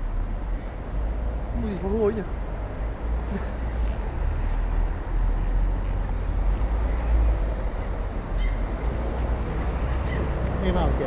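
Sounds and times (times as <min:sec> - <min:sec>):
city ambience: 0:00.0 - 0:11.0.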